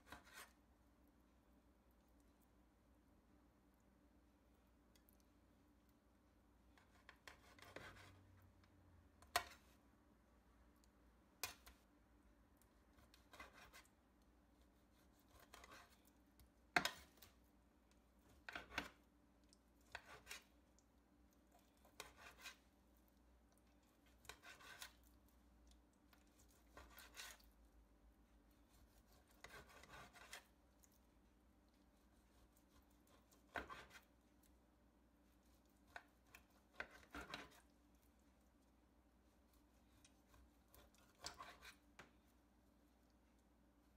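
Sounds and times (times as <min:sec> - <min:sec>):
knife slicing raw chicken: 0:00.0 - 0:00.6, 0:06.8 - 0:08.2, 0:12.9 - 0:14.0, 0:14.6 - 0:16.1, 0:19.9 - 0:20.6, 0:21.8 - 0:22.7, 0:23.9 - 0:25.1, 0:26.3 - 0:27.4, 0:28.5 - 0:30.6, 0:31.9 - 0:34.1, 0:35.3 - 0:37.7, 0:39.4 - 0:42.1.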